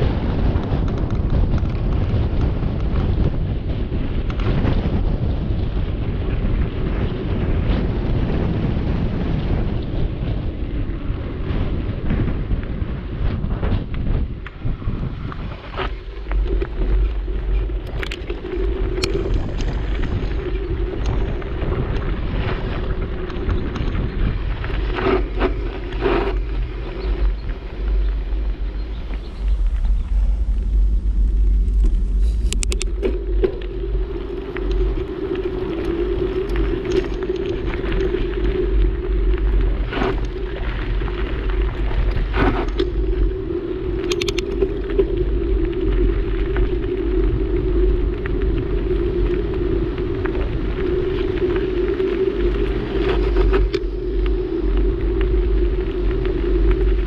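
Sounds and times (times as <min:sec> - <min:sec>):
bike rattles and clicks: 0:00.0 - 0:57.0
tyres rolling on pavement: 0:00.0 - 0:57.0
wind buffeting microphone: 0:00.0 - 0:57.0
tyres crunching on gravel: 0:15.3 - 0:43.0.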